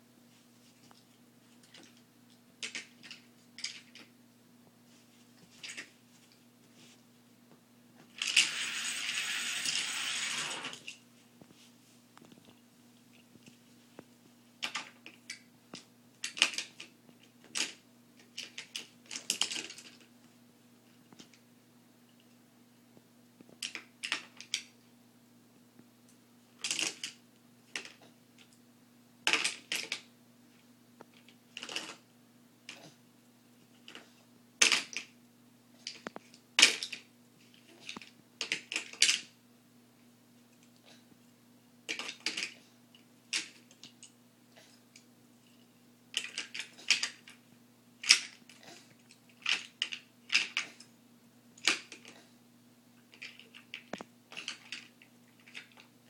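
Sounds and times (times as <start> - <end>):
toy cars clattering on plastic ramp: 8.2 - 10.9.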